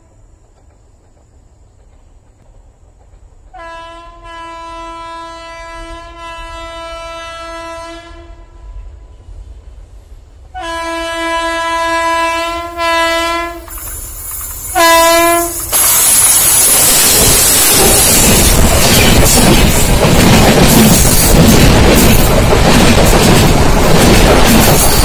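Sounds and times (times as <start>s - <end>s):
oncoming train noise: 0.0s - 25.0s
locomotive horn blasts: 3.5s - 8.8s, 10.5s - 13.7s, 14.7s - 15.7s.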